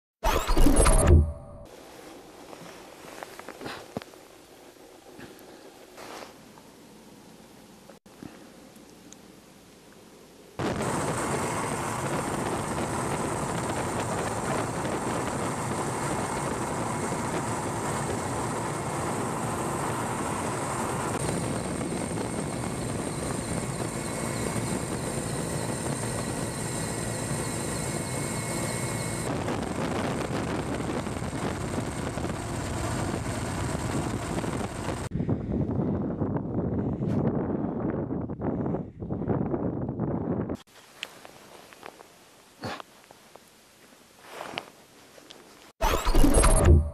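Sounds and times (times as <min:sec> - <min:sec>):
helicopter engine and rotor noise: 0:10.6 - 0:35.1.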